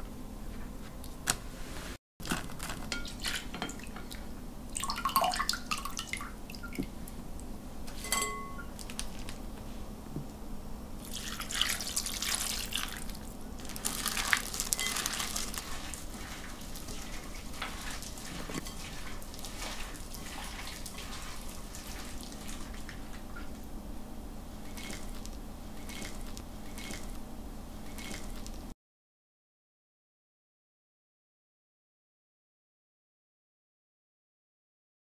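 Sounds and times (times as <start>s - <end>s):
salad tossed in glass bowl: 13.8s - 22.8s.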